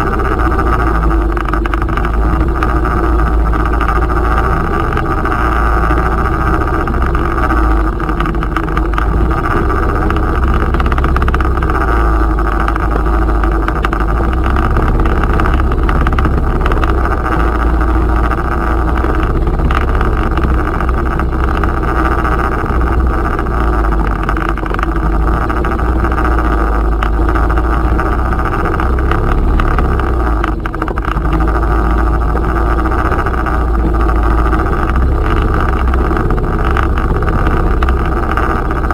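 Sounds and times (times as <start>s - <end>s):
outboard motor running: 0.0s - 38.9s.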